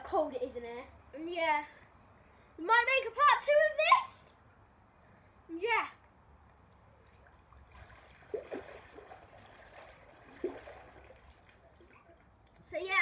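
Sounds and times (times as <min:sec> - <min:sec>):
water sloshing and trickling: 0:06.7 - 0:12.8
small splashes: 0:07.0 - 0:12.6.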